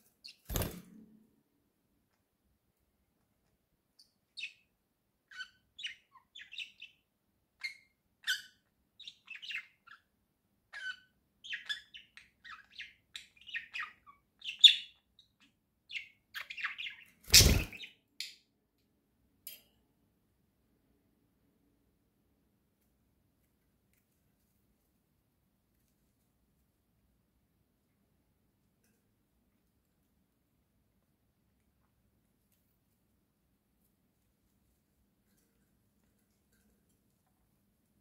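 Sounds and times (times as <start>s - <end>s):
budgerigars chirping and warbling: 15.9s - 17.9s.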